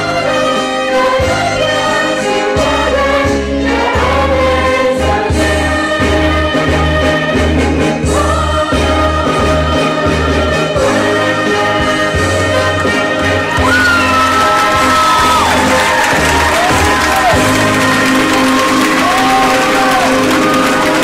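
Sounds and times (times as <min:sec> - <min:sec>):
young voices singing in unison: 0:00.0 - 0:16.0
musical accompaniment with bass notes: 0:00.0 - 0:21.0.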